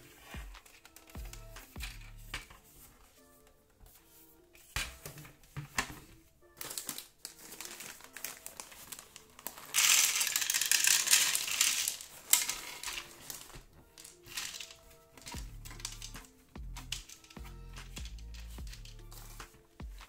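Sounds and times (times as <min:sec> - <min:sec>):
plastic bag crinkling: 0:06.5 - 0:19.6
plastic pegs clattering into a tray: 0:06.6 - 0:19.7.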